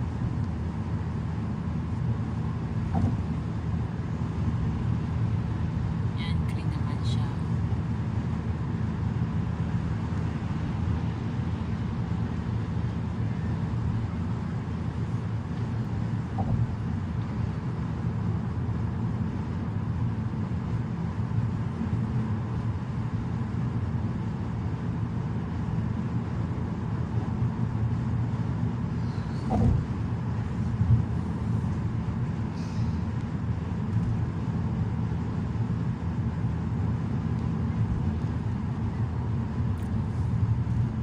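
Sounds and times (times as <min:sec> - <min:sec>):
car tyres and engine rumbling: 0:00.0 - 0:41.0
faint steady whine: 0:00.0 - 0:41.0.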